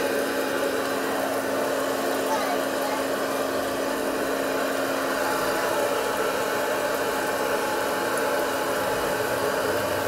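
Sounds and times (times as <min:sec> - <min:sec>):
popcorn popper fan whirring: 0:00.0 - 0:10.0.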